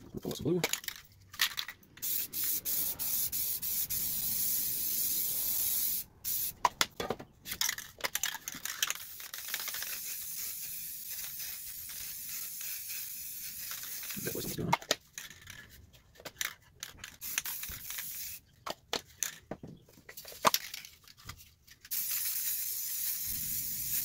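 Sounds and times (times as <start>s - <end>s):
spray paint can hissing: 2.0s - 6.7s, 8.8s - 14.6s, 17.1s - 18.4s, 21.9s - 24.0s.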